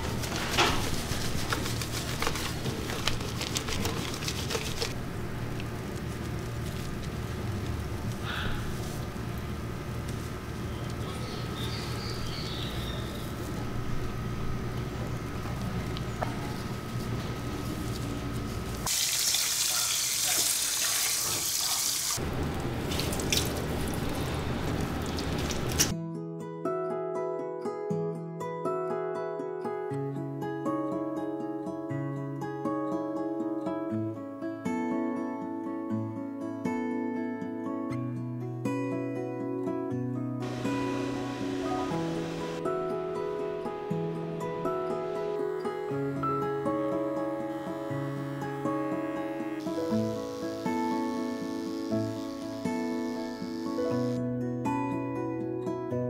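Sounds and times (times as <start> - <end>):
shower hose spraying water: 18.8 - 25.9, 40.4 - 42.6
water splashing and dripping: 22.8 - 25.9.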